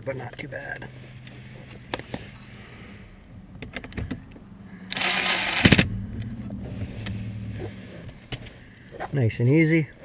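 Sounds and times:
cordless drill driving screw: 4.9s - 5.8s.

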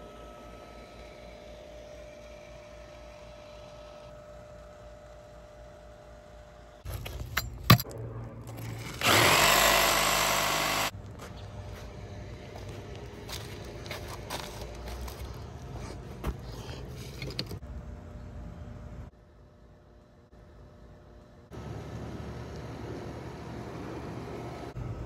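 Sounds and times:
faint steady hum: 0.0s - 8.9s, 9.5s - 25.0s
multi-tool cutting metal pipe: 8.8s - 10.9s.

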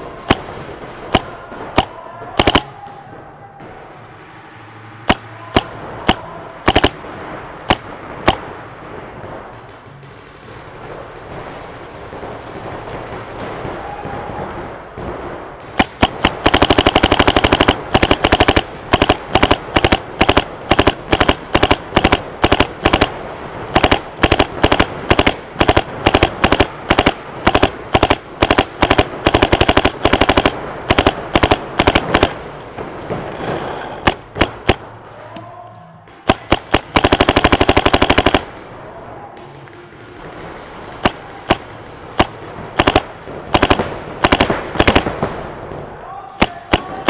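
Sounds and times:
paintball markers firing: 1.1s - 2.8s, 5.0s - 7.0s, 7.7s - 8.4s, 15.6s - 32.4s, 33.4s - 34.8s, 36.1s - 38.6s, 39.4s - 45.3s, 46.4s - 47.0s.

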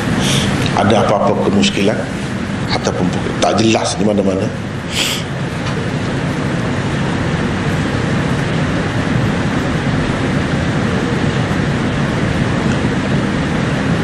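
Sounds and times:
steady hiss: 0.0s - 10.4s
low rumble: 0.0s - 12.7s.

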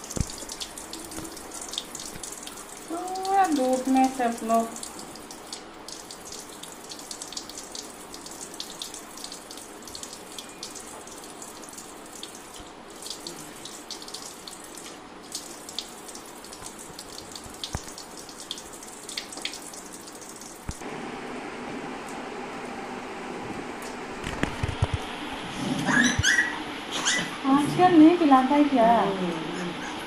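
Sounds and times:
tap running into sink: 0.0s - 2.5s, 16.6s - 18.1s.

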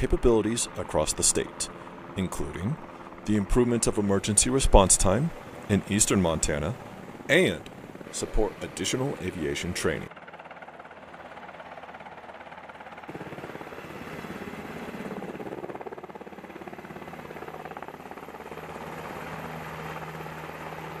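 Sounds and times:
helicopter rotor beating: 0.0s - 21.0s.

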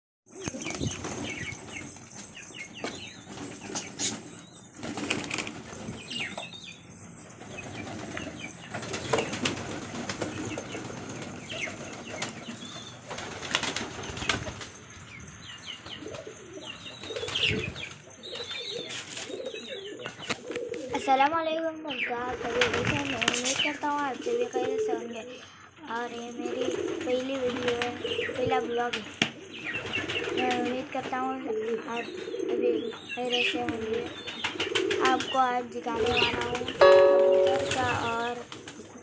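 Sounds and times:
pigeons flapping wings: 0.3s - 6.4s, 7.3s - 15.0s, 15.8s - 21.1s, 22.2s - 25.2s, 26.1s - 32.6s, 33.4s - 39.0s.

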